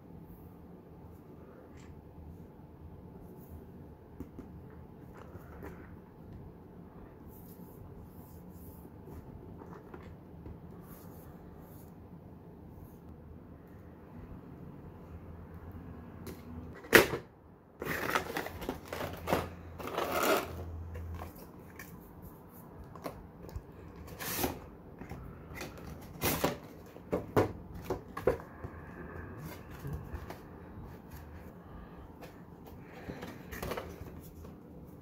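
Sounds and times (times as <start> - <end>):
cardboard and plastic rustling: 17.8 - 22.0, 22.9 - 28.7, 32.1 - 35.0.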